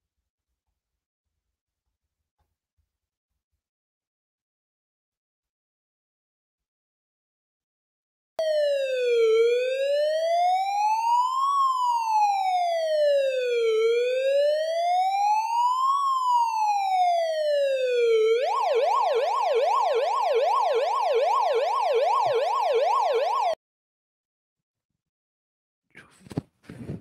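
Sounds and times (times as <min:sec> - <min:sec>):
electronic police siren: 0:08.4 - 0:23.6.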